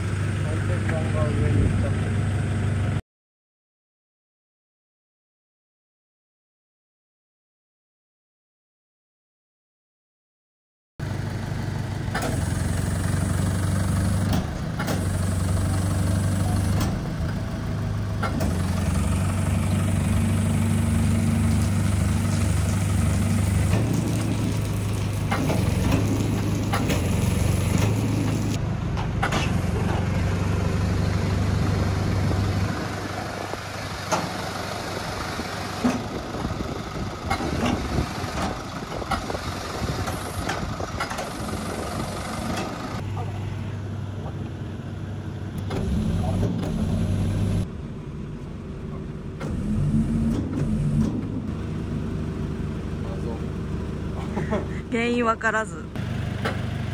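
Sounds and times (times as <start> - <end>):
truck engine running: 0.0 - 3.0, 11.0 - 56.9
hydraulics humming: 12.0 - 56.9.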